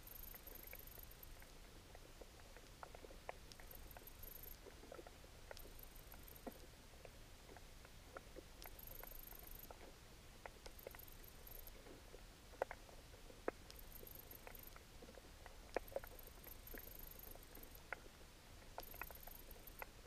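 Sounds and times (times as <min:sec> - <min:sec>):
small underwater clicks and ticks: 0:00.0 - 0:20.0.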